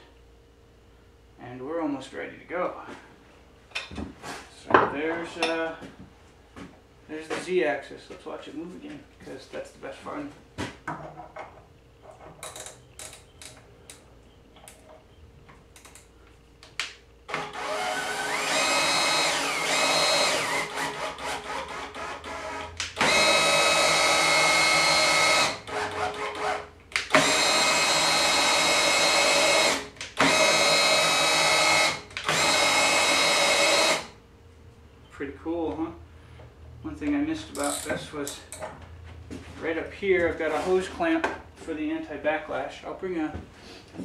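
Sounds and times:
cordless drill whine: 17.3 - 34.2.

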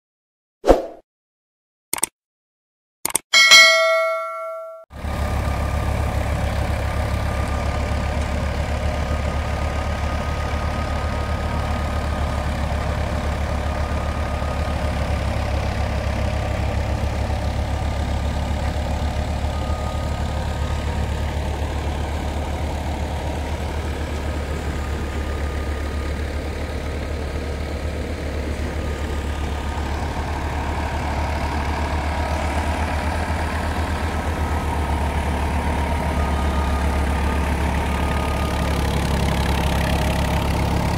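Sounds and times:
tractor engine and thresher drone: 5.0 - 40.9.

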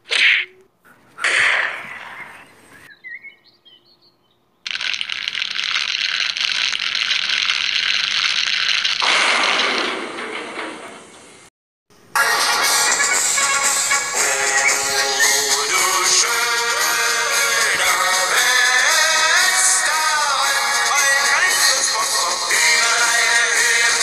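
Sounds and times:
gunshot-like crack: 1.2 - 2.1, 9.0 - 10.3
hissing crackling fire noise: 4.7 - 10.0.

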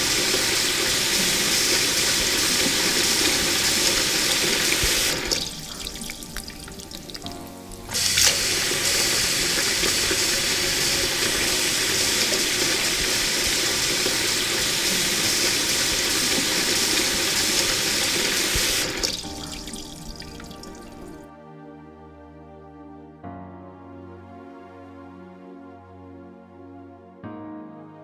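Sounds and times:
noodles sizzling in hot oil: 0.0 - 21.2
soft background music: 0.0 - 28.0.

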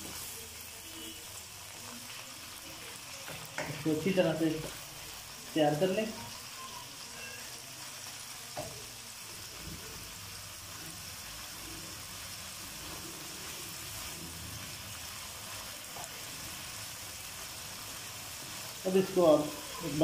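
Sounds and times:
chicken sizzling in hot oil: 0.0 - 20.0
spatula stirring in wok: 6.4 - 20.0.

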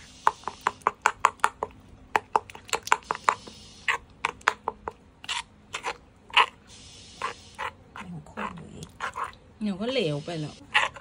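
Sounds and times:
metal spoon scraping stone mortar: 5.2 - 6.6, 7.2 - 11.0.

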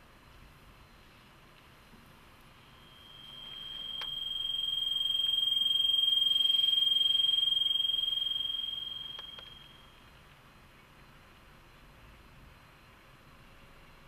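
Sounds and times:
high-pitched tone: 2.7 - 10.0
faint clicks: 9.1 - 9.6.

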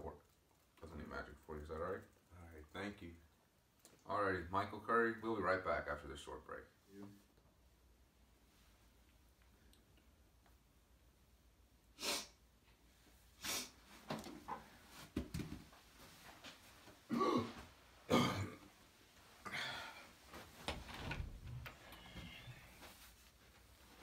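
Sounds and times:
man coughing and gagging: 17.1 - 18.7.

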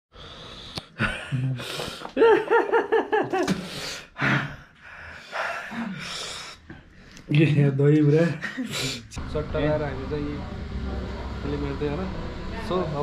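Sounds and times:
man gasping and breathing heavily: 3.5 - 6.9.

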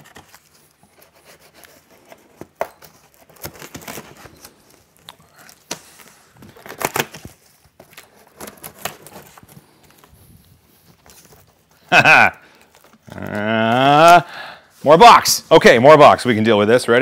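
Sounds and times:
knife slitting packing tape: 0.0 - 5.7
tape tearing: 0.0 - 14.3.

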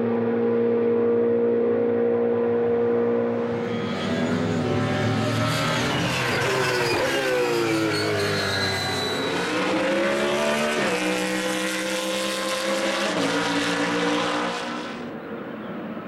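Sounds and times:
race car engine accelerating: 0.0 - 15.1.

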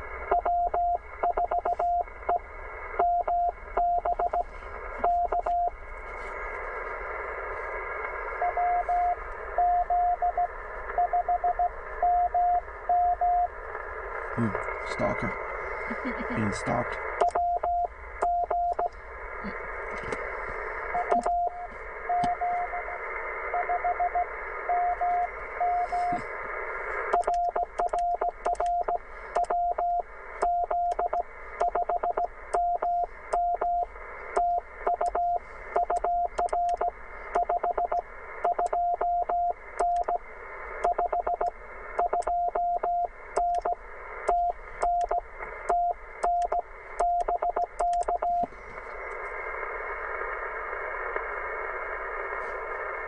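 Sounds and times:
radio band hiss: 4.4 - 9.6, 12.6 - 17.3, 18.9 - 29.4, 32.3 - 38.8, 43.1 - 47.0, 47.6 - 53.0
morse code tone: 8.4 - 13.5, 21.0 - 23.0, 23.6 - 26.0, 27.2 - 40.2, 44.3 - 48.5.

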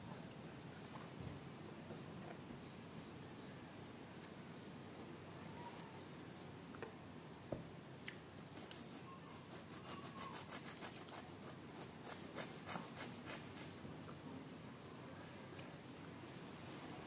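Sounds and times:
knife sawing through bread: 8.8 - 13.7.

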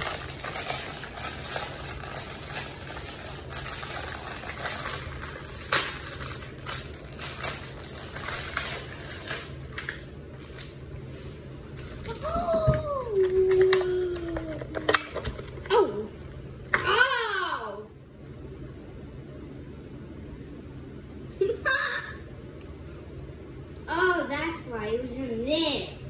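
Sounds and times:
plastic packaging crinkling: 0.0 - 10.8
steady low hum: 0.0 - 26.0.

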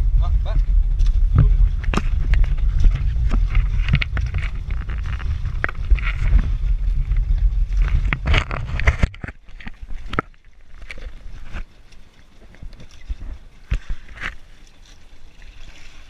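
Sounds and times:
wind buffeting microphone: 0.0 - 10.3.

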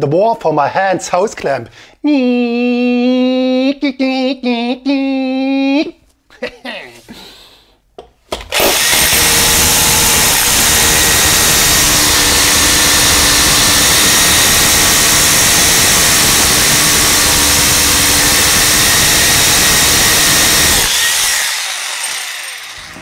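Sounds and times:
power drill boring into wall: 8.4 - 23.0.

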